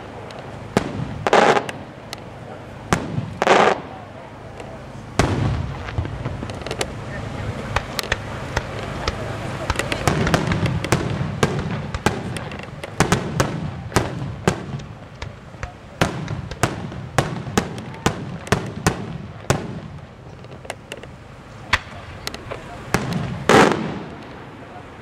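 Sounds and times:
firework shells bursting: 0.0 - 24.7
low rumble: 0.0 - 25.0.

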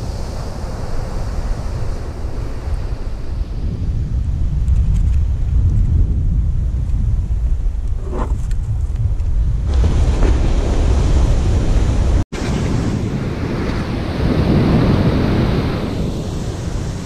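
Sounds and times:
ocean surf breaking on beach: 0.0 - 3.9, 9.7 - 17.0
wind buffeting microphone: 0.0 - 17.0.

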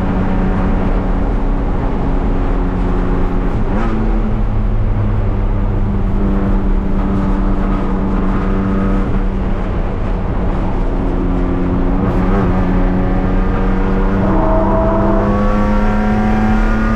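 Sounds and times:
race car engine revving: 10.7 - 16.9.

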